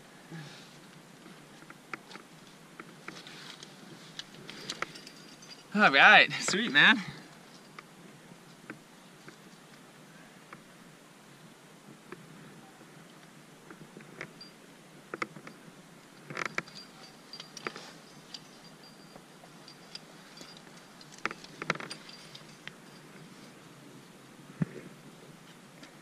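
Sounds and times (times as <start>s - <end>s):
climbing gear clinking: 3.1s - 7.8s, 15.4s - 23.4s.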